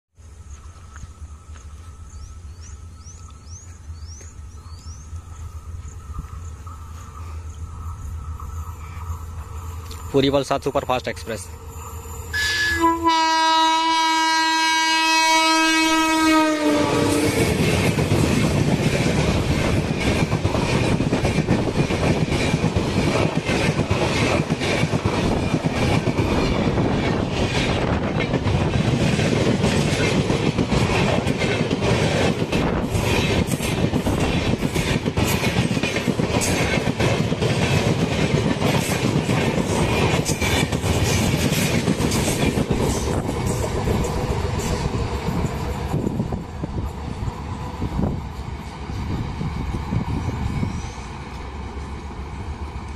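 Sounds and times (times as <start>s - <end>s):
locomotive horn blast: 12.4s - 17.5s
train wheels rumbling and clattering: 16.4s - 52.9s.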